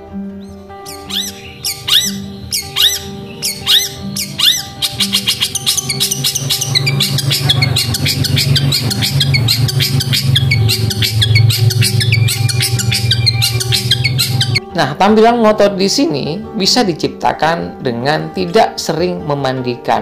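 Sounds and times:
background music low tones: 0.0 - 20.0
bird singing high notes: 0.4 - 14.7.

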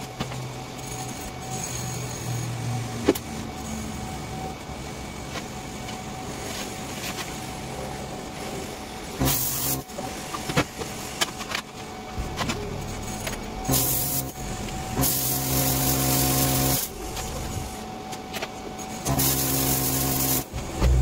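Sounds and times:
engine running: 19.0 - 21.0.

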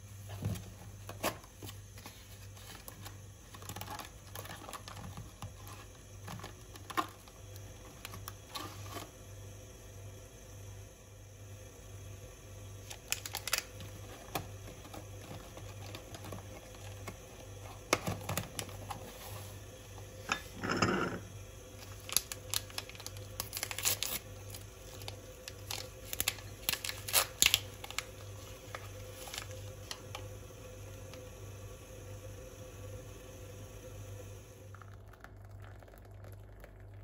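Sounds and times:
paper sachets crinkling: 12.8 - 19.1, 21.8 - 30.3.

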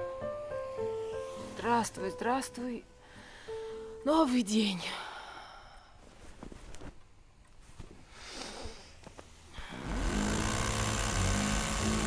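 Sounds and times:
bedding rustling: 6.0 - 11.1
rotary hammer drilling: 9.6 - 12.0.

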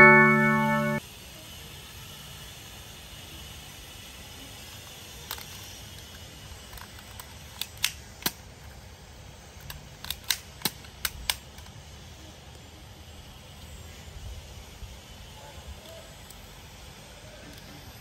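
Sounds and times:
toy pistol plastic clicks: 5.2 - 8.4, 9.6 - 11.8.

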